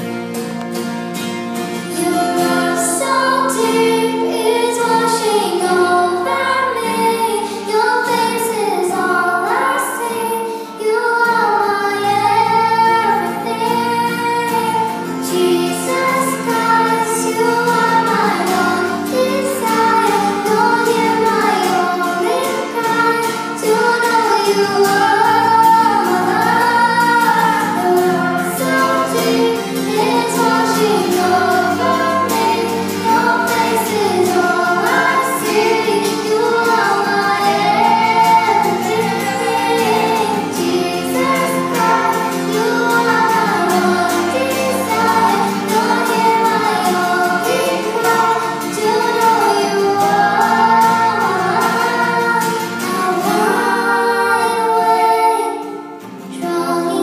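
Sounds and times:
guitar: 0.0 - 57.0
girl singing: 1.8 - 57.0
bass guitar: 11.8 - 54.8.

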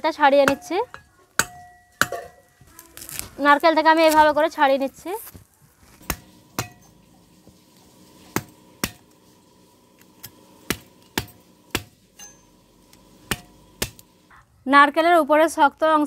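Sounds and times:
knife striking coconut shell: 6.0 - 7.0, 8.3 - 9.1, 10.2 - 12.5, 13.2 - 14.1.

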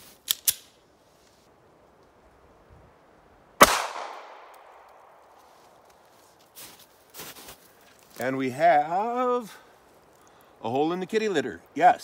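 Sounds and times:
pistol shot: 3.6 - 4.6.

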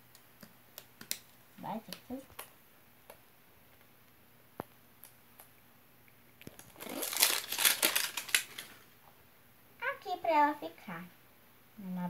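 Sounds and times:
plastic crinkling: 6.4 - 8.9.

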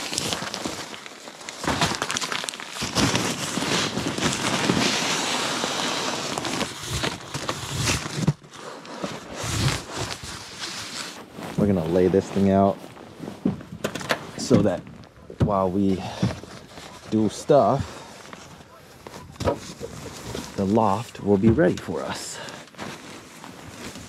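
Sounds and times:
nylon fabric crinkling: 0.0 - 24.0.

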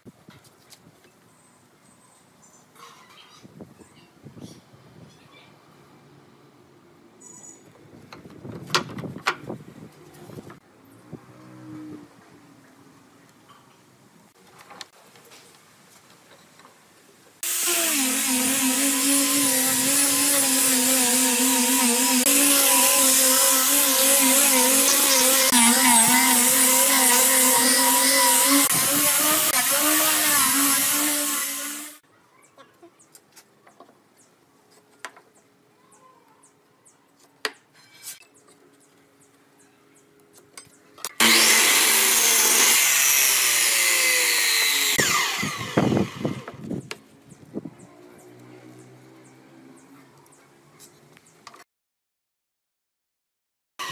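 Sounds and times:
angle grinder sanding wood: 17.4 - 32.0, 41.2 - 46.6
miter saw cutting board: 17.4 - 32.0, 41.1 - 46.6.

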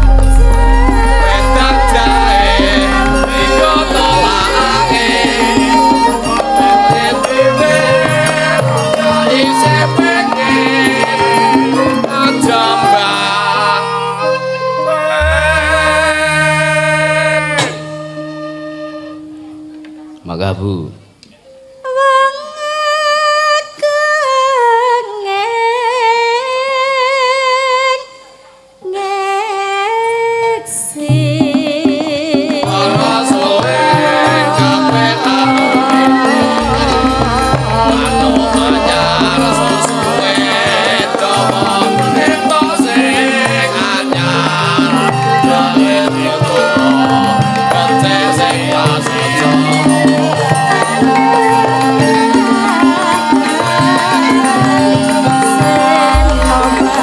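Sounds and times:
deep low boom: 0.0 - 6.5, 15.2 - 17.2, 36.6 - 40.2, 56.2 - 57.0
woman singing into a microphone: 0.0 - 14.5, 21.8 - 57.0
gamelan ensemble: 0.0 - 20.3, 32.7 - 57.0.

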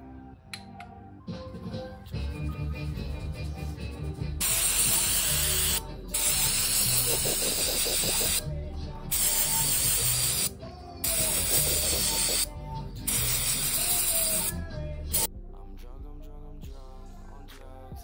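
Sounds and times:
aerosol spray can hissing: 4.4 - 8.4, 9.1 - 12.5, 13.1 - 15.3.

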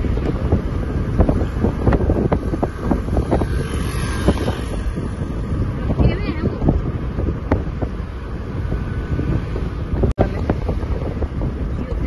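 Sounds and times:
car road and engine rumble: 0.0 - 12.0
wind buffeting microphone: 0.0 - 12.0.

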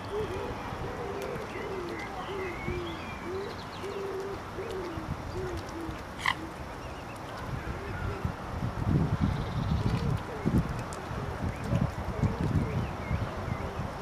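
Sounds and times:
soft low hooting bird calls: 0.0 - 8.4.

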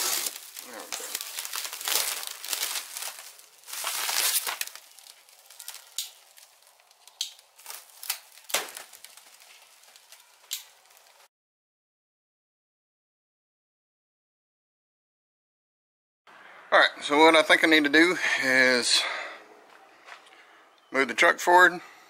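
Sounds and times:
plastic stretch wrap crinkling: 0.0 - 11.3.

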